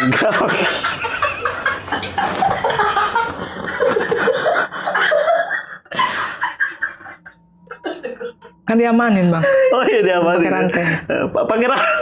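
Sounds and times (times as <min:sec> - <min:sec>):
men laughing: 0:00.0 - 0:08.6.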